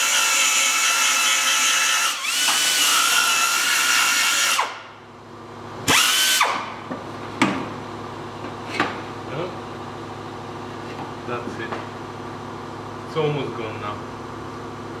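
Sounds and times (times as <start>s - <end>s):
pneumatic belt sander whining: 0.0s - 4.9s, 5.8s - 6.8s.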